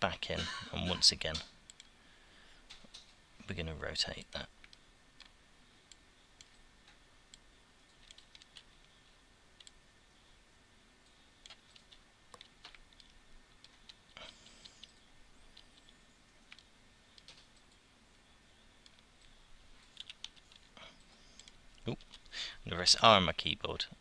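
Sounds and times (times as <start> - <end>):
keyboard and mouse clicks: 4.6 - 8.9, 11.0 - 17.8, 18.8 - 20.7, 21.4 - 22.3.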